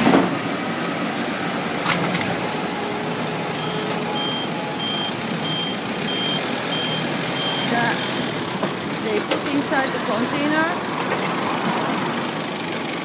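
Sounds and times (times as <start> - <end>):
steady vehicle hum: 0.0 - 13.0
forklift reversing alarm beeping: 2.4 - 8.4.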